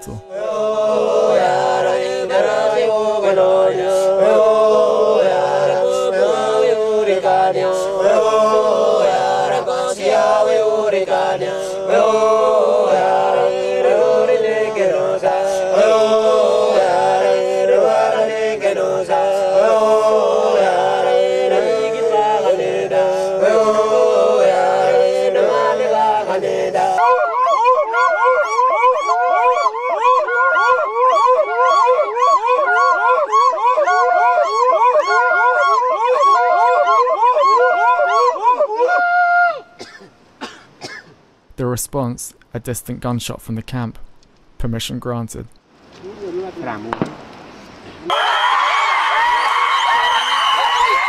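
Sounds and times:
men chanting in unison: 0:00.0 - 0:27.0.

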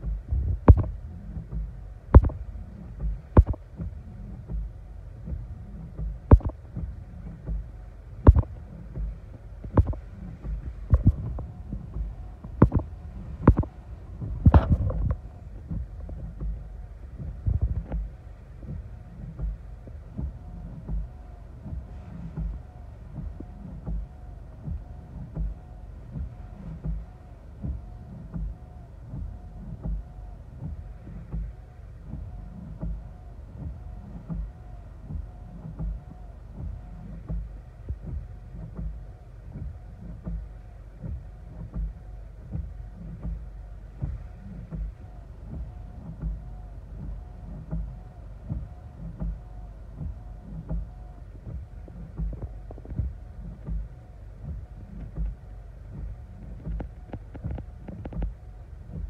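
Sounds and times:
low thump: 0:00.0 - 0:03.9, 0:08.2 - 0:16.6
wind and rain on car: 0:00.0 - 0:59.0
windshield wipers sweeping: 0:00.0 - 0:59.0.

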